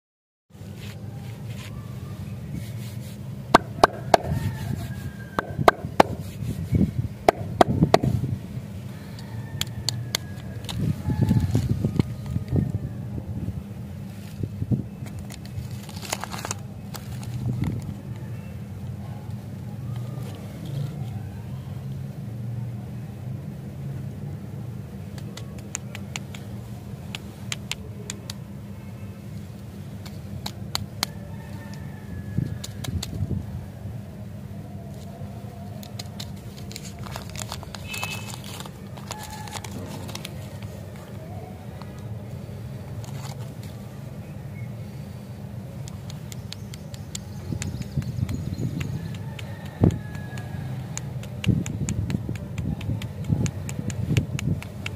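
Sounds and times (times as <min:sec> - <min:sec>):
steady low hum: 0:00.5 - 0:54.9
steady low rumble: 0:00.6 - 0:54.9
plastic wrappers crackling: 0:15.0 - 0:17.9, 0:35.8 - 0:42.0
sharp clicks: 0:45.8 - 0:54.9.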